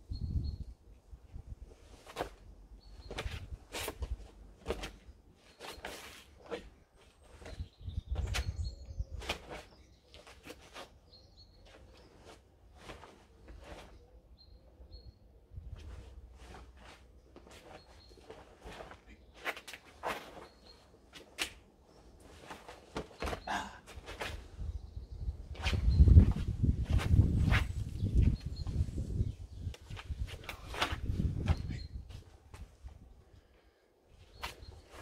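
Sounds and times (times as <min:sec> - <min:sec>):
bird chirps: 0:07.1 - 0:12.2, 0:13.8 - 0:15.4, 0:17.2 - 0:19.4, 0:20.3 - 0:21.0
low wind rumble: 0:24.2 - 0:33.5.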